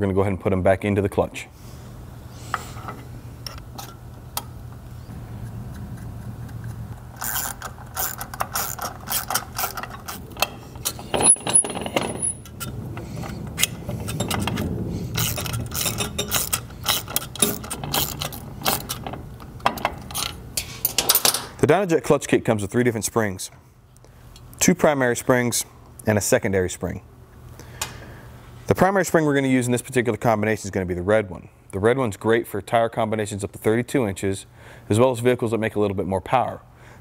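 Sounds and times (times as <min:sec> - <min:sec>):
low steady hum: 0:00.0 - 0:37.0
sharp metal clicks: 0:05.4 - 0:21.4
socket ratchet clicking: 0:06.4 - 0:12.6.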